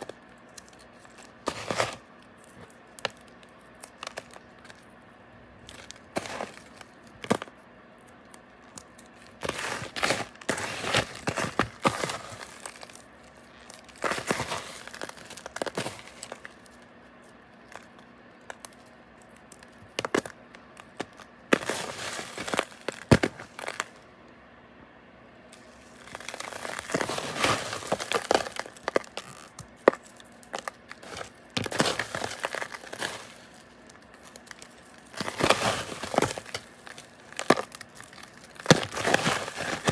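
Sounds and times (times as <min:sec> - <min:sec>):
chunk snapping: 0:00.0 - 0:04.9, 0:26.0 - 0:39.9
crystals crunching and crackling: 0:00.0 - 0:24.0, 0:25.5 - 0:39.9.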